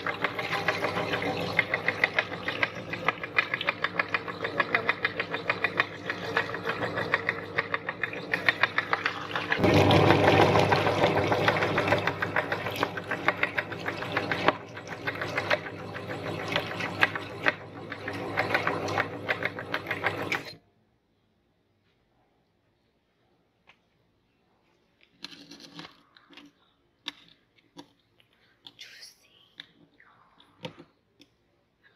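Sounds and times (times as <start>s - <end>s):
electric meat grinder running: 0.0s - 20.6s.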